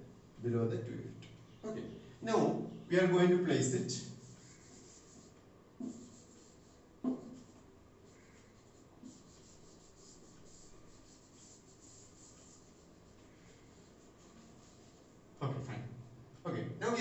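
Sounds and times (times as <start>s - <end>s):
faint scratching of writing: 2.9s - 15.3s
knocks on a board: 7.0s - 7.4s.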